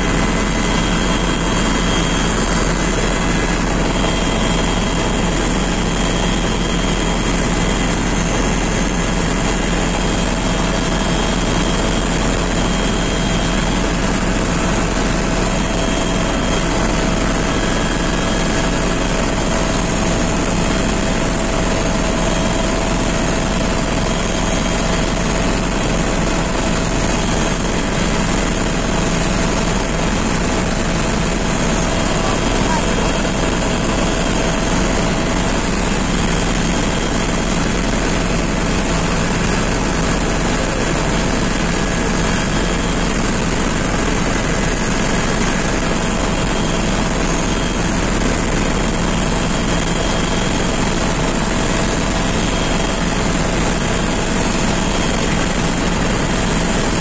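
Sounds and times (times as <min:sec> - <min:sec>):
aircraft cabin engine noise: 0:00.0 - 0:57.0.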